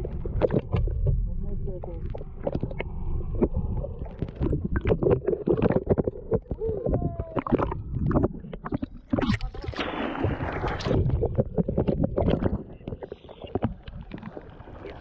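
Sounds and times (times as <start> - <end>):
muffled underwater sloshing: 0.0 - 15.0
splashing water: 3.4 - 15.0.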